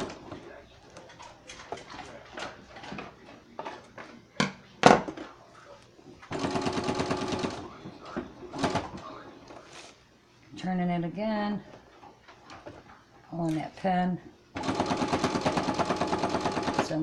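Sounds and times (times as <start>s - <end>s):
sewing machine stitching: 14.6s - 17.0s.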